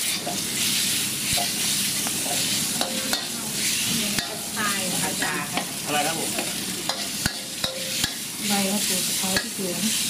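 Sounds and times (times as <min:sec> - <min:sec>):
food sizzling in hot oil: 0:00.0 - 0:10.0
spatula scraping and knocking pan: 0:05.2 - 0:08.2.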